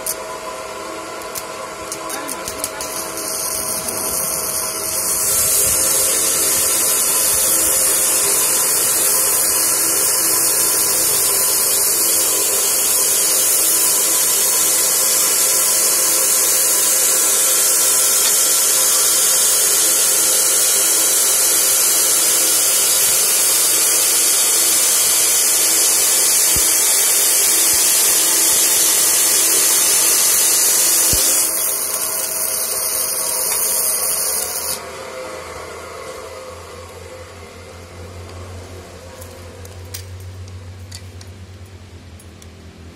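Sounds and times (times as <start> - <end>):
welding arc hissing: 1.2 - 34.8.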